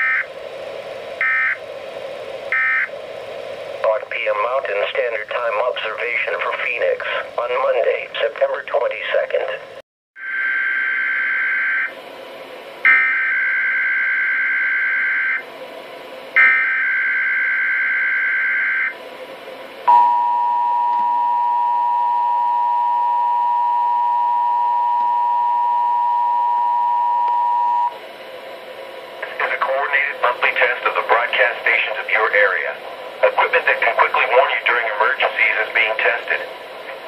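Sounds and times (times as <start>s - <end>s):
steady attention tone: 19.8s - 37.0s
static hiss: 28.8s - 37.0s.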